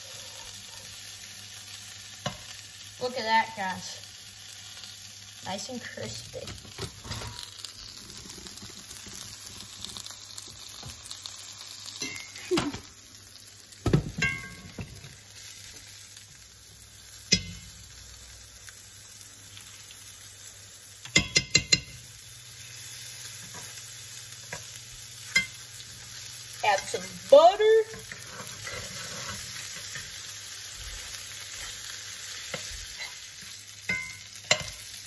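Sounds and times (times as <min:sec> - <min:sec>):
fish fillets sizzling in oil: 0:00.0 - 0:35.0
spatula and fork scraping pan: 0:23.1 - 0:35.0.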